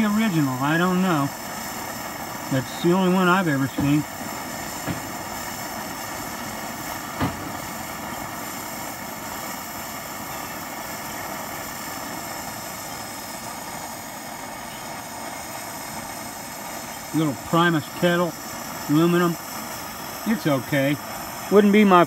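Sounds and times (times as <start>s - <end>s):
stove burner rushing: 0.0s - 22.0s.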